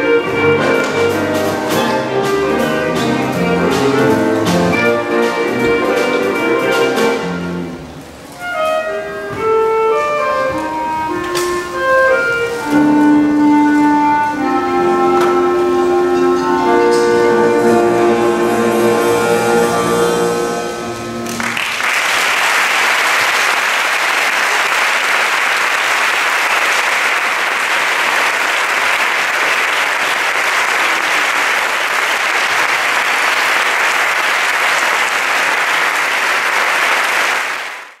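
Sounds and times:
clarinet ensemble with piano and drums: 0:00.0 - 0:21.6
audience applause: 0:21.2 - 0:38.0.

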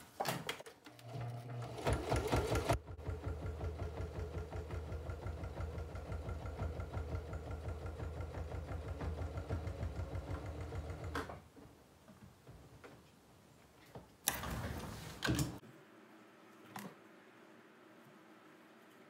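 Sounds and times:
electric sewing machine stitching: 0:01.0 - 0:11.3.

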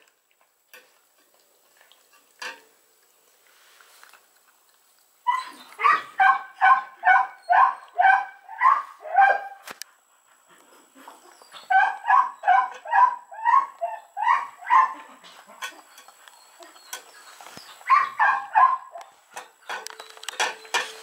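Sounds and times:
dog yipping: 0:05.3 - 0:09.6, 0:11.4 - 0:15.0, 0:15.7 - 0:19.1.

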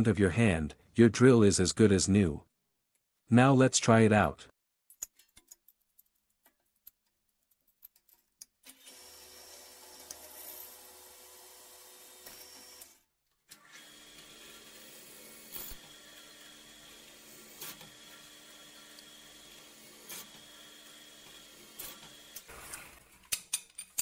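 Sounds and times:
drill press motor hum: 0:08.7 - 0:23.0.

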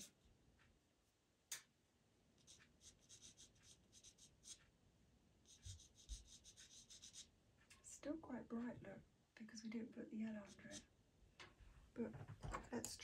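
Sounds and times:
pencil scratching on paper: 0:02.4 - 0:04.7, 0:05.4 - 0:07.3, 0:10.4 - 0:10.9.

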